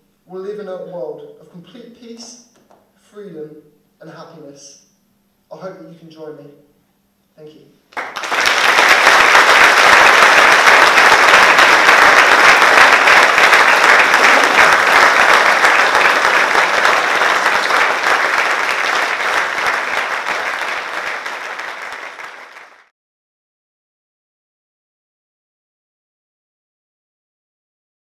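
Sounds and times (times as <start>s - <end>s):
audience applauding: 7.9s - 22.9s.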